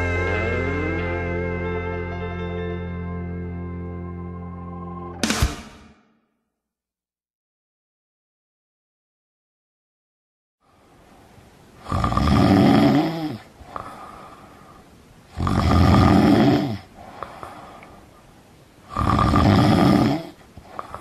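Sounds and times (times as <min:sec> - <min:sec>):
quiet breathing: 0:10.6 - 0:21.0
man snoring: 0:11.8 - 0:14.2, 0:15.3 - 0:17.5, 0:18.9 - 0:21.0.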